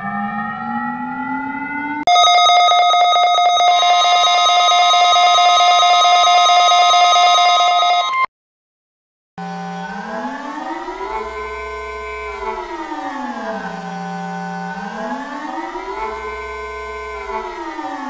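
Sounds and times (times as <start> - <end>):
emergency alert siren rising: 0.0 - 8.3, 9.5 - 18.0
high beeping alert tones: 2.1 - 8.3.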